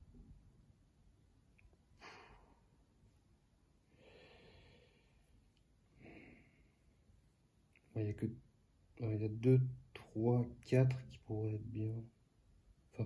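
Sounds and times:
faint breaths: 3.8s - 7.4s.

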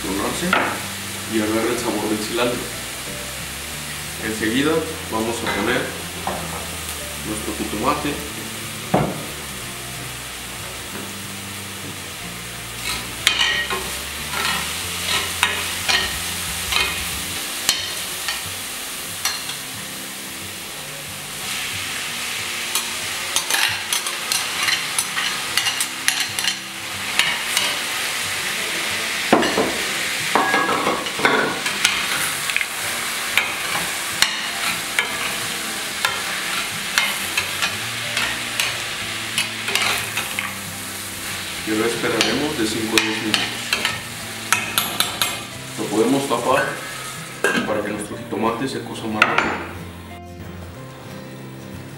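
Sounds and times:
vegetables sizzling in oil: 0.0s - 47.7s
metal spoon scraping a pan: 12.8s - 17.1s, 36.0s - 40.5s.

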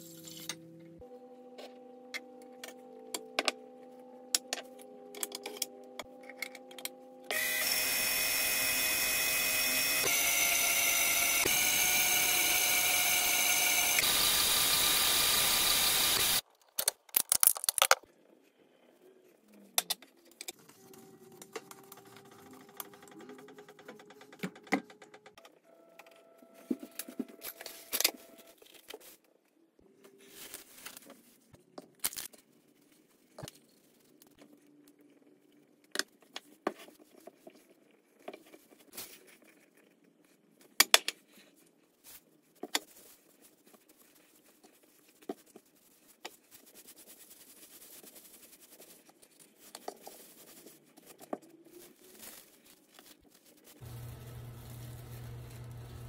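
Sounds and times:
cling film crinkling: 45.6s - 56.0s.

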